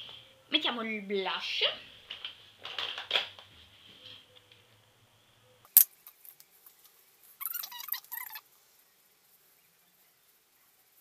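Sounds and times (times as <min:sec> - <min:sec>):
plastic containers clattering: 0:02.1 - 0:03.5.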